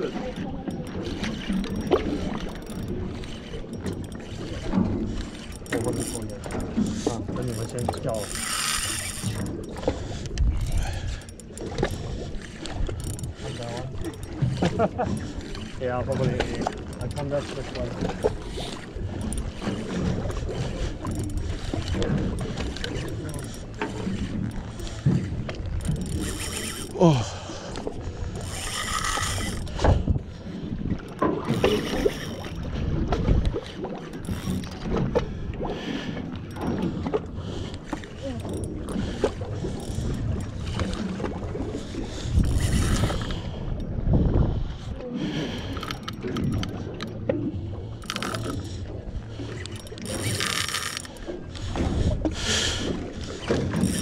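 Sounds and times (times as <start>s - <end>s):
water slapping against boat hull: 0.0s - 54.0s
fishing rod and reel knocks: 0.4s - 30.2s, 30.9s - 35.3s, 36.3s - 41.7s, 42.3s - 44.4s, 45.6s - 54.0s
wind on microphone: 17.9s - 35.7s, 38.2s - 54.0s.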